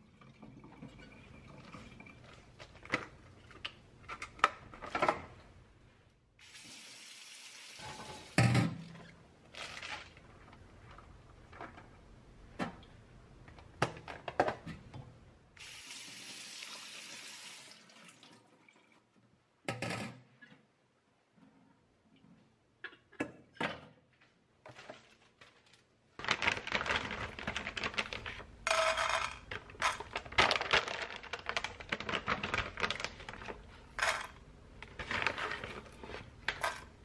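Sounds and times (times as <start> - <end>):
kitchen tap running: 15.6 - 19.0.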